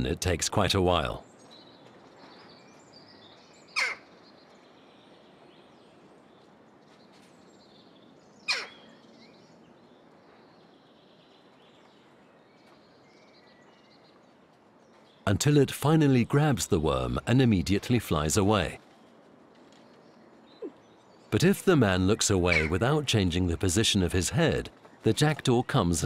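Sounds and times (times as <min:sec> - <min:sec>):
jackdaw calling: 0:03.8 - 0:04.1, 0:08.5 - 0:08.9, 0:20.6 - 0:26.0.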